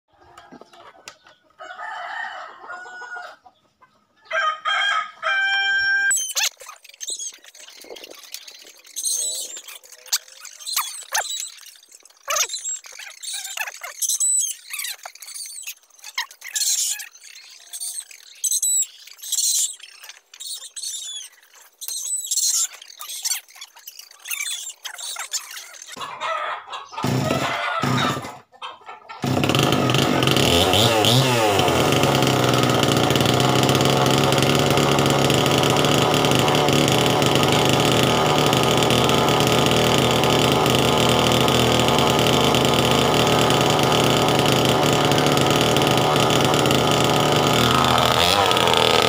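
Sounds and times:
small birds chirping: 0:00.1 - 0:29.7, 0:34.3 - 0:49.0
rooster crowing: 0:01.6 - 0:03.4, 0:04.2 - 0:06.2, 0:26.1 - 0:28.3.

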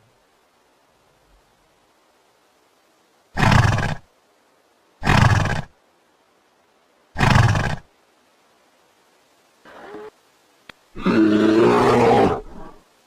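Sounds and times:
horse calling: 0:03.4 - 0:04.0, 0:05.0 - 0:05.7, 0:07.2 - 0:07.9.

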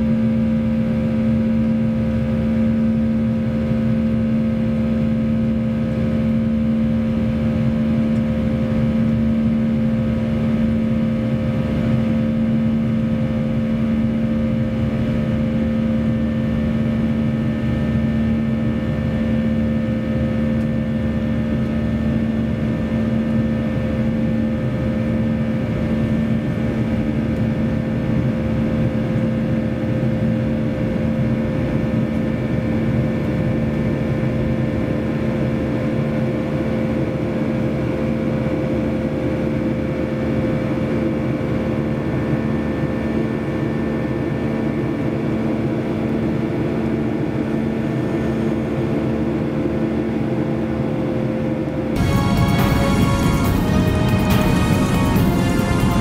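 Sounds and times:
jet engines droning: 0:00.0 - 0:56.0
steady hum tones: 0:51.7 - 0:56.0.

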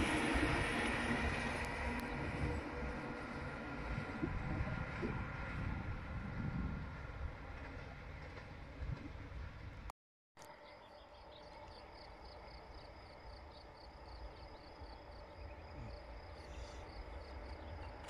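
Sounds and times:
wind rumble on microphone: 0:00.0 - 0:09.9.

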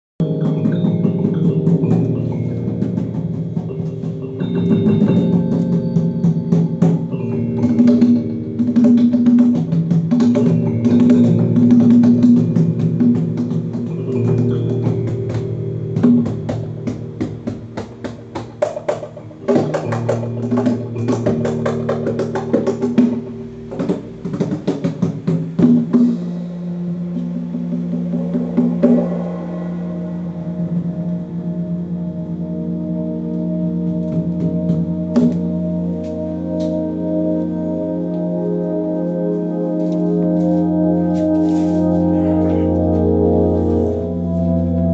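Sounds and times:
electronic keyboard chords: 0:00.0 - 0:44.9
sustained low notes: 0:00.2 - 0:44.9
hand drum strokes: 0:00.3 - 0:32.1, 0:39.8 - 0:44.1.

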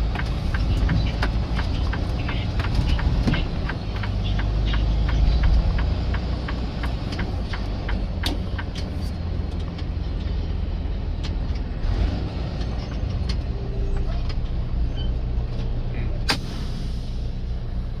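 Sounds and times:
fast even ticking: 0:00.0 - 0:08.9
diesel truck engine rumbling: 0:00.0 - 0:18.0.

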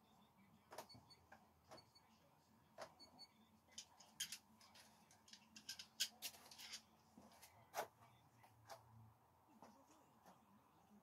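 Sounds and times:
metal screwdrivers clinking: 0:03.7 - 0:06.9.

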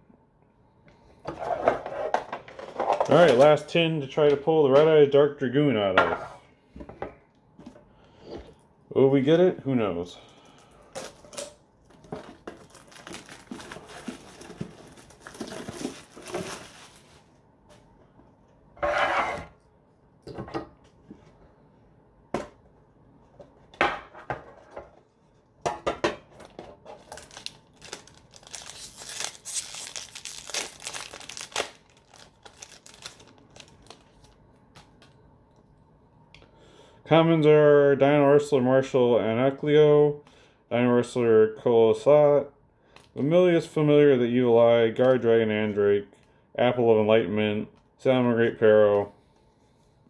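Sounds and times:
foil wrappers crinkling and tearing: 0:10.4 - 0:17.3, 0:26.9 - 0:34.4.

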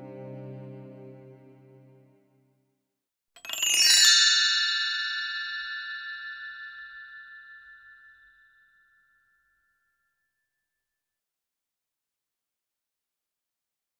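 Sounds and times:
bell-like chime ringing: 0:03.4 - 0:10.2.

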